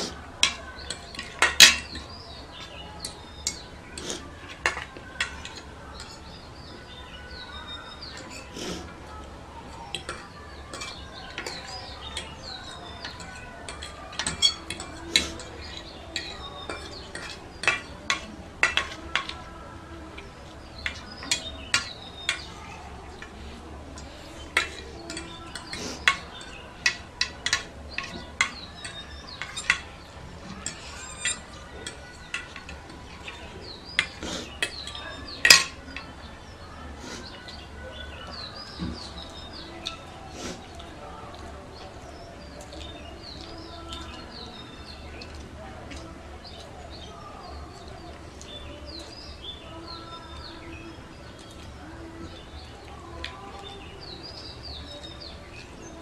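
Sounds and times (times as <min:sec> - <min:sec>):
forks clinking on plates: 0:00.0 - 0:06.4, 0:09.7 - 0:19.5, 0:20.8 - 0:23.3, 0:24.0 - 0:36.1.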